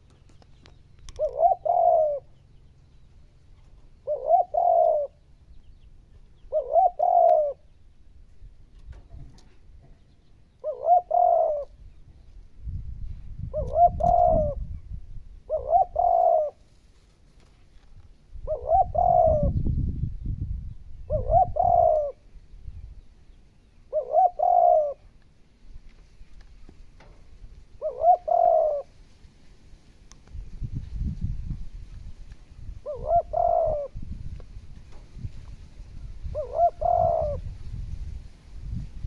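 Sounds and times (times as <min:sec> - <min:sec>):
dove cooing: 0:01.0 - 0:02.4, 0:03.6 - 0:05.2, 0:06.4 - 0:07.7, 0:10.6 - 0:11.8, 0:13.4 - 0:14.8, 0:15.4 - 0:16.7, 0:18.4 - 0:19.7, 0:21.0 - 0:22.3, 0:23.9 - 0:25.2, 0:27.7 - 0:29.0, 0:32.8 - 0:34.1, 0:36.2 - 0:37.6.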